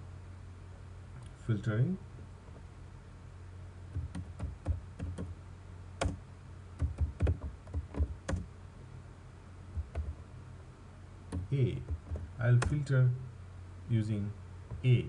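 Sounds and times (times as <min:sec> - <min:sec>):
keyboard typing: 0:03.9 - 0:05.3, 0:06.0 - 0:06.2, 0:06.8 - 0:08.5, 0:09.8 - 0:10.2, 0:11.3 - 0:12.8.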